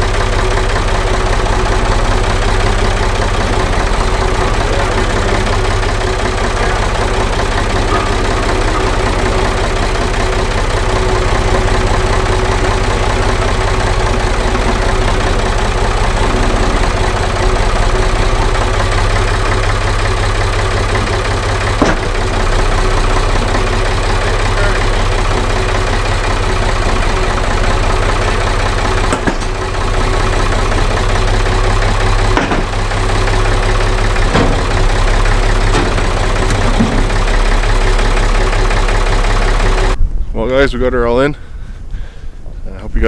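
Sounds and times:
tractor engine running: 0.0 - 40.2
sharp knocks: 21.1 - 22.3, 29.1 - 29.6, 32.3 - 32.8.

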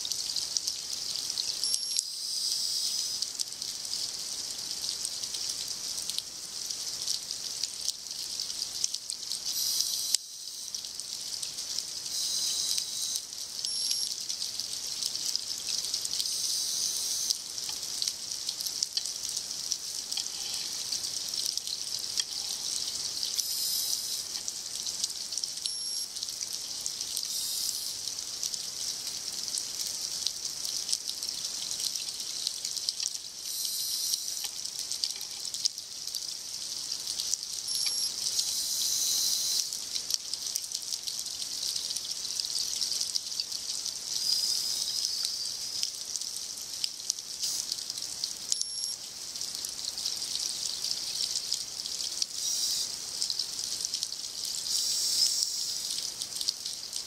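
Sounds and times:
underwater crackling hiss: 1.4 - 3.3, 9.5 - 11.2, 12.0 - 14.1, 15.9 - 18.0, 20.0 - 25.0, 26.7 - 28.5, 33.4 - 35.6, 37.6 - 39.8, 44.0 - 46.0, 47.4 - 49.0, 52.2 - 53.2, 54.6 - 56.1.

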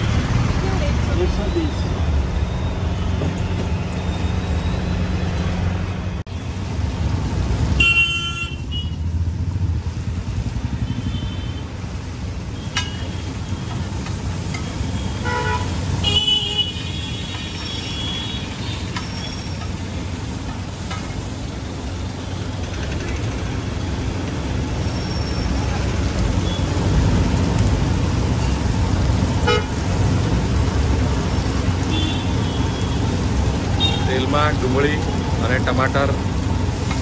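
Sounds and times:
street traffic hum: 0.0 - 37.0
car horns tooting: 7.8 - 9.0, 14.8 - 18.9, 29.4 - 29.8
spatula clinking on iron griddle: 12.8 - 13.1.

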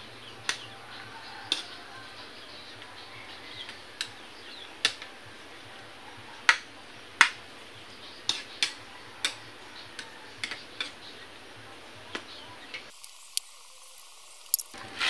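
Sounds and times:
metal utensil clicking on wok: 1.5 - 1.7.

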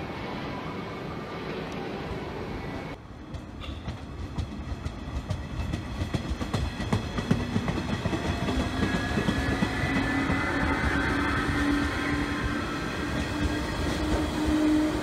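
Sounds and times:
train wheels clacking over rail joints: 3.3 - 10.8.

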